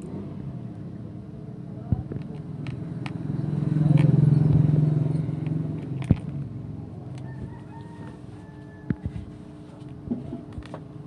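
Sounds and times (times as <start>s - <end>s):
motor vehicle passing: 2.7s - 8.0s.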